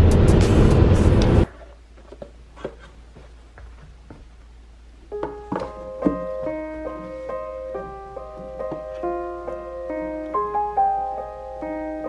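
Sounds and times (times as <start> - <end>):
piano music: 5.1 - 12.0.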